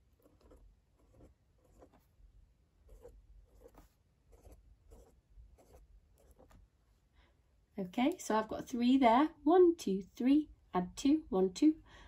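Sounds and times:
pen scratching on paper: 0.0 - 2.1, 2.8 - 6.6.

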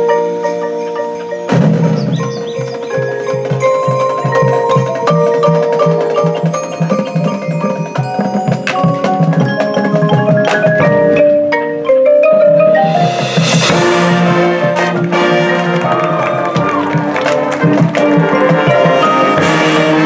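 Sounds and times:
marimbas and glockenspiel: 0.0 - 15.3
marching band: 0.0 - 20.0.

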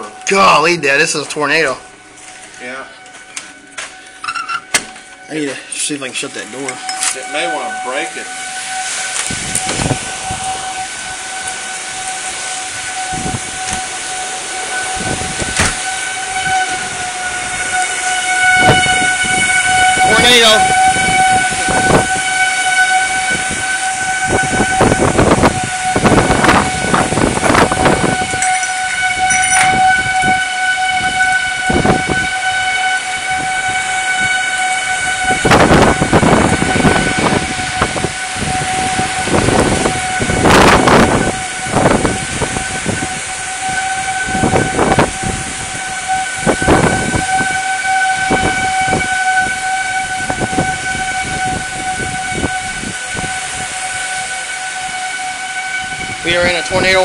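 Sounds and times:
tornado winds gusting: 0.0 - 2.6, 3.6 - 57.0
high whistle-like tone: 2.6 - 19.3, 27.5 - 31.9.

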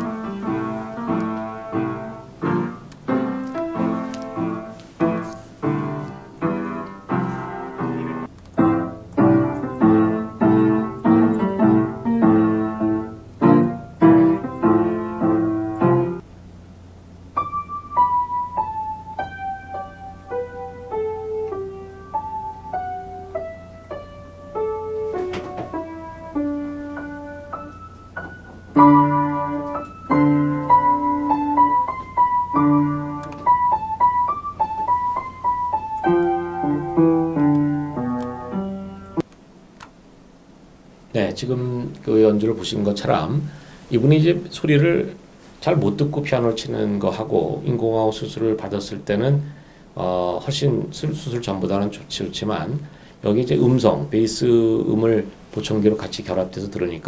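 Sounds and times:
piano chords: 0.0 - 39.3
slow piano melody: 0.0 - 39.3
low steady hum: 0.0 - 57.0.

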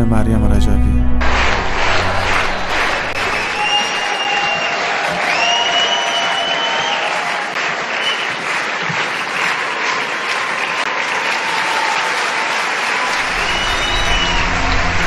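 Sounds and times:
music: 0.0 - 4.1, 13.1 - 15.0
audience applauding: 1.2 - 15.0.

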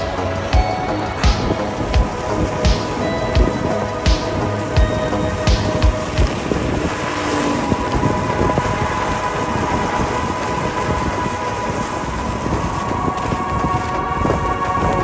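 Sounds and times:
wheels rolling on tarmac: 0.0 - 15.0
wind noise on microphone: 0.0 - 15.0.

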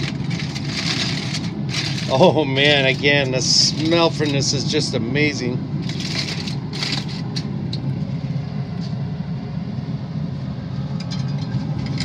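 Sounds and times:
aluminium foil crinkling: 0.0 - 4.7, 5.8 - 7.5
grill fan humming: 0.0 - 12.0.

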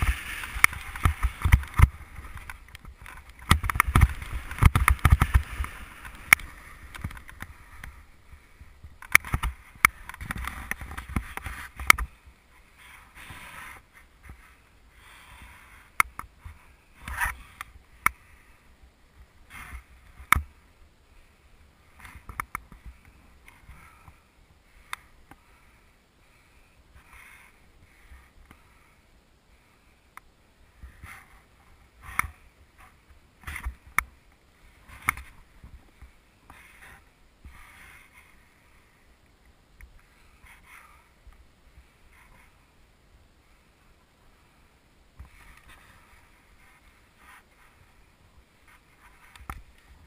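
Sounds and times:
snowboard scraping over snow: 0.0 - 8.6.

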